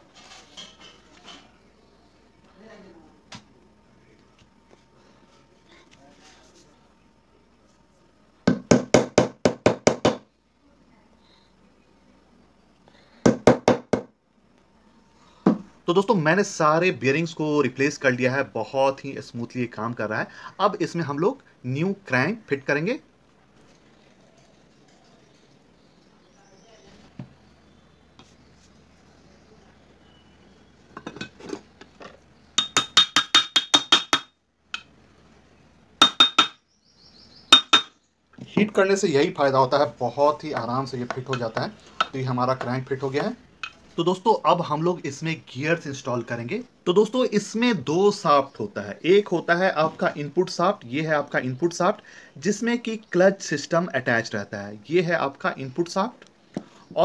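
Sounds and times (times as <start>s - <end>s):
sharp metallic taps: 32.6s - 34.9s, 36.0s - 36.6s, 37.5s - 38.0s.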